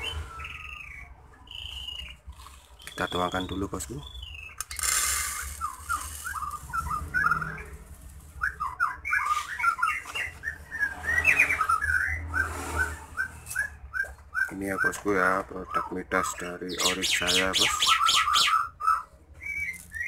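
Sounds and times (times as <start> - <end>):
small birds chirping: 0.0 - 20.0
seed pouring into plastic cup: 4.7 - 6.3.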